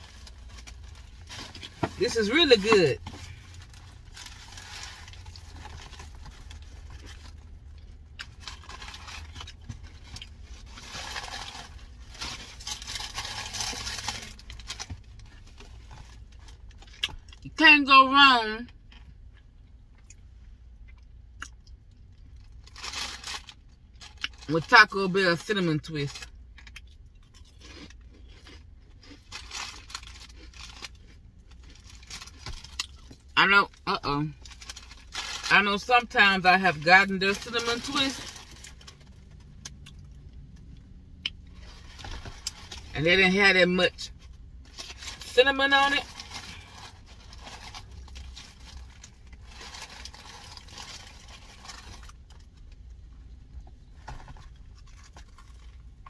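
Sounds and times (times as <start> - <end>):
packaging crinkling and tearing: 0.0 - 7.4, 8.2 - 17.0, 22.4 - 24.5, 29.2 - 33.2, 34.4 - 35.5, 37.3 - 40.1, 46.0 - 52.7
low steady hum: 0.0 - 56.0.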